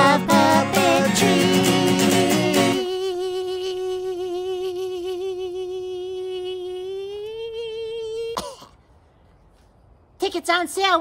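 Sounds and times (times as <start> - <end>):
jingle guitar: 0.0 - 2.8
voice holding long note: 0.0 - 8.4.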